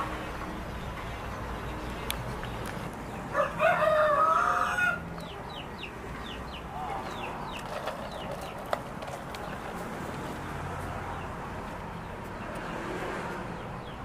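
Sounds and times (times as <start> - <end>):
rooster crowing: 3.3 - 5.0.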